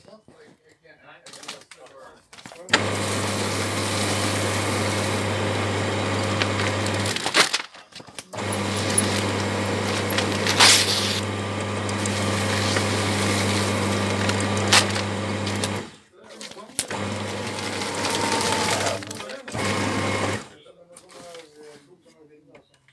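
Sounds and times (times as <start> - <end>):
shredder crunches: 2.6 - 20.6
paper shredder motor humming: 2.7 - 7.6, 8.3 - 16.0, 16.8 - 20.6.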